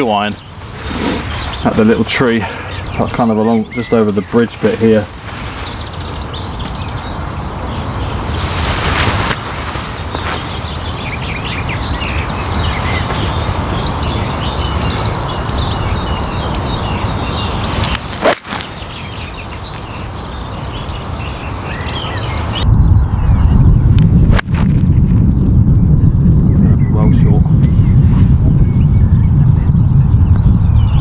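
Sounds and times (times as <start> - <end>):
small birds chirping: 0.0 - 23.8, 24.9 - 31.0
wind rumble on microphone: 0.0 - 31.0
golf club striking ball: 17.9 - 18.7.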